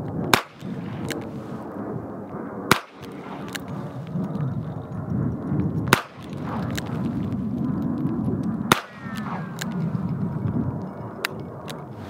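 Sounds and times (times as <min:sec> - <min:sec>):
revolver shots: 0:02.7 - 0:03.7, 0:05.9 - 0:07.0, 0:08.7 - 0:10.0.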